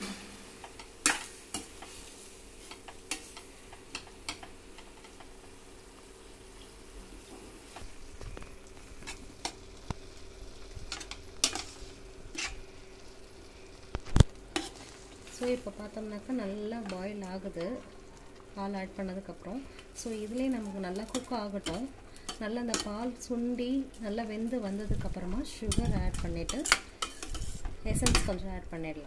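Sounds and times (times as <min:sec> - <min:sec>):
pan sizzling faintly: 0:00.0 - 0:29.0
metal spoon scraping a pan: 0:10.9 - 0:12.7, 0:14.6 - 0:15.0, 0:25.6 - 0:28.3.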